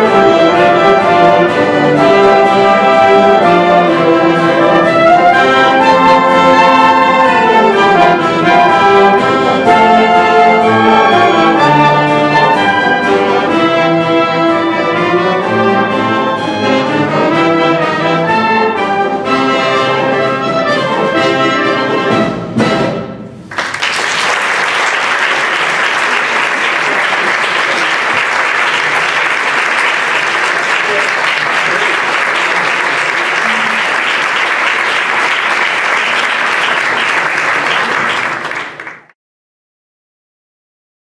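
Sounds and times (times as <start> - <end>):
wind band playing: 0.0 - 23.4, 24.7 - 38.9
audience applause: 23.5 - 39.2.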